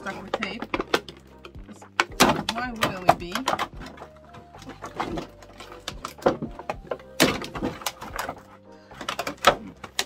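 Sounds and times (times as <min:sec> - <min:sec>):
plastic packaging crinkling: 0:03.4 - 0:10.0.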